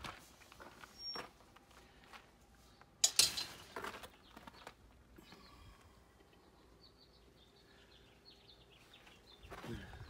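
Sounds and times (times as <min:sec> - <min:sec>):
footsteps crunching on gravel: 0:00.0 - 0:02.4, 0:03.5 - 0:04.8
faint birds chirping: 0:00.0 - 0:10.0.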